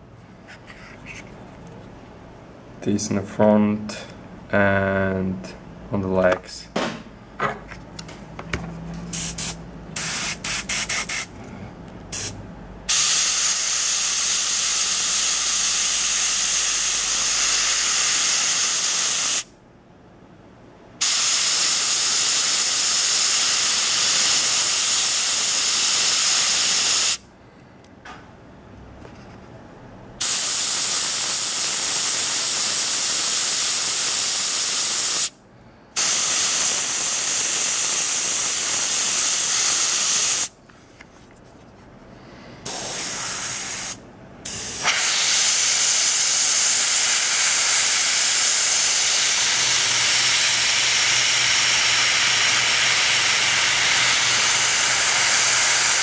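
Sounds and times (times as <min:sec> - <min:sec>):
airbrush spraying hiss: 0:09.1 - 0:11.3, 0:12.1 - 0:19.5, 0:36.0 - 0:40.5, 0:42.6 - 0:56.0.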